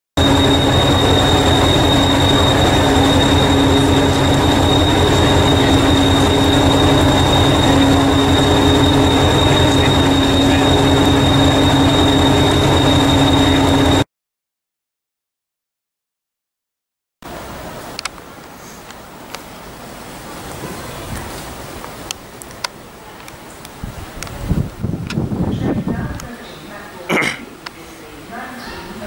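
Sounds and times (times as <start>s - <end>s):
diesel engine idling: 0.2s - 14.0s.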